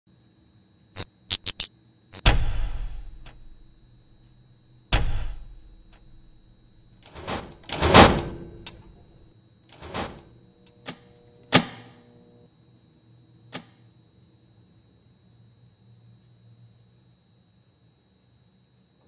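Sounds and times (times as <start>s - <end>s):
sharp cinematic hits: 2.2s - 3.6s, 5.0s - 6.2s.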